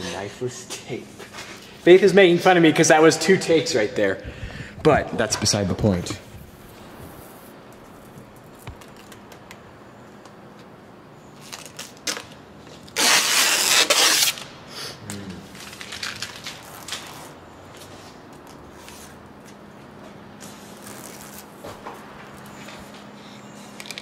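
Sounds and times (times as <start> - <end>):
hands rubbing vinyl film: 6.0 - 9.6, 11.4 - 14.5, 15.4 - 19.6, 20.4 - 24.0
vinyl film ripping crackle: 6.4 - 9.5, 11.4 - 14.5, 15.5 - 17.4, 20.8 - 21.6.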